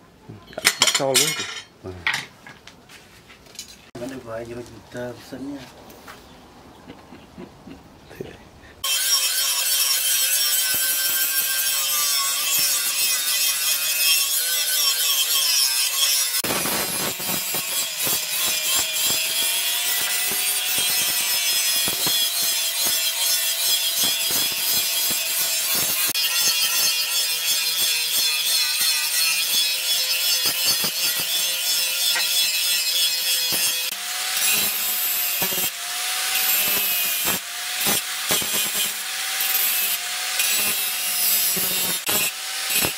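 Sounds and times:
angle grinder grinding steel: 8.8s - 42.9s.

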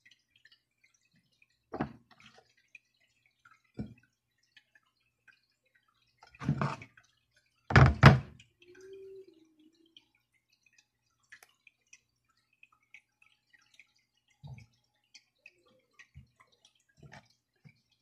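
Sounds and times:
ceramic platter knocking on plastic: 7.7s - 8.3s.

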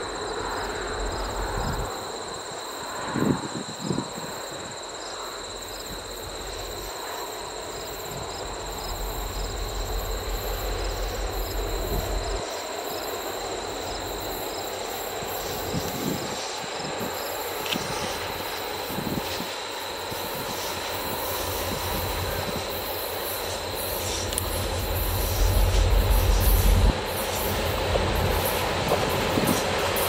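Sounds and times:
train wheels on rails: 5.1s - 30.0s
deep rumble: 7.6s - 14.3s, 21.4s - 29.5s.

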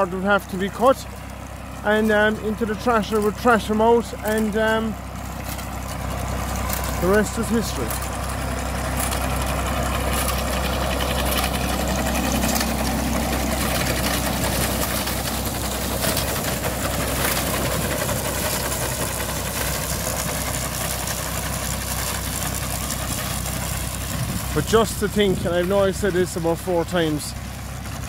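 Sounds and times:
tractor diesel engine running: 0.0s - 28.0s.

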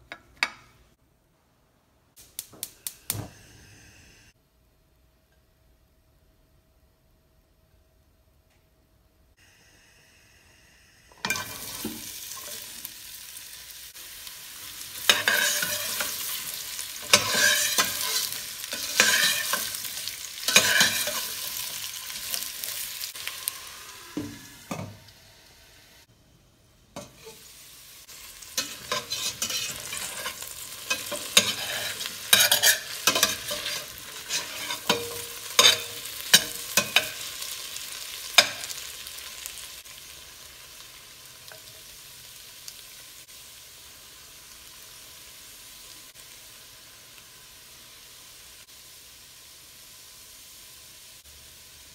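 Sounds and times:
potatoes sizzling in hot oil: 11.1s - 26.1s, 27.0s - 51.9s
spoon scraping pot: 15.1s - 16.3s, 17.0s - 19.8s, 28.6s - 37.2s.

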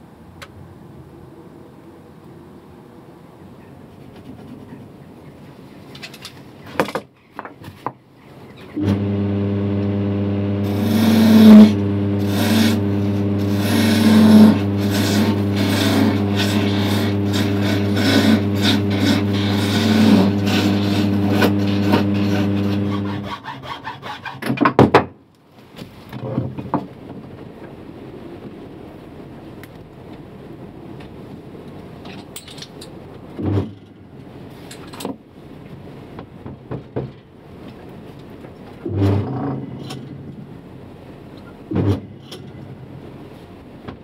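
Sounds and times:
lathe motor humming: 8.8s - 23.4s
gouge scraping spinning wood: 8.8s - 24.4s.

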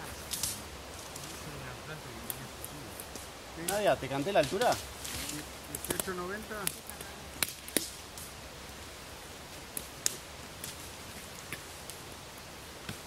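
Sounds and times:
steady outdoor hiss: 0.0s - 13.0s
twigs snapping underfoot: 0.2s - 1.4s, 2.3s - 8.3s.

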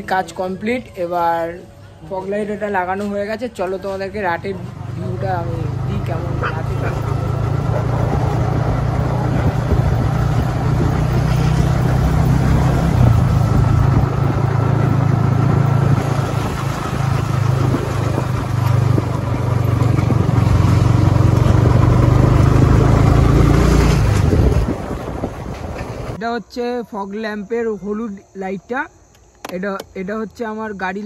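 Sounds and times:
motorcycle engine running: 4.2s - 26.2s.

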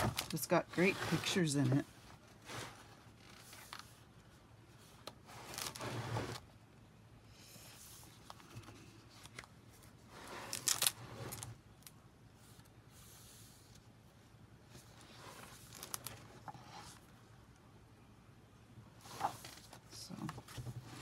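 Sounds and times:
book pages turning: 4.8s - 5.9s, 7.8s - 11.6s, 14.8s - 17.0s, 19.0s - 20.8s.

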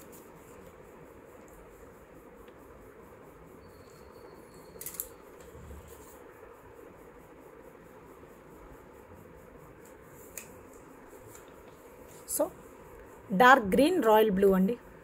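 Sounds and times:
low background hiss: 0.0s - 15.0s
small sharp clicks: 4.8s - 5.5s.

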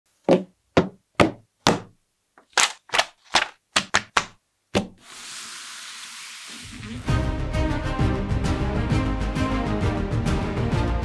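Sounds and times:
boxes knocking and tapping: 0.2s - 2.0s.

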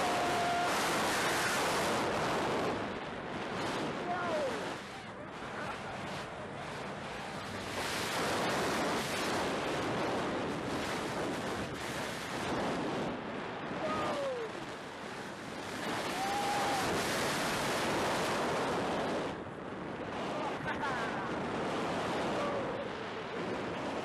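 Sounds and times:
wind rushing over microphone: 0.0s - 24.0s.

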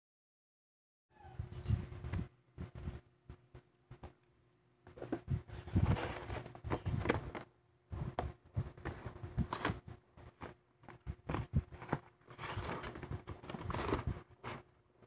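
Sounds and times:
cardboard scraping rustles: 5.0s - 7.5s, 8.7s - 14.7s.

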